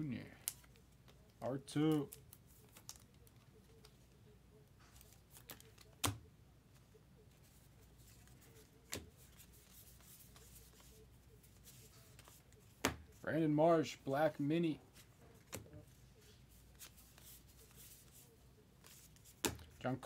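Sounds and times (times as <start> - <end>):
cards rustling: 0.2 - 20.0.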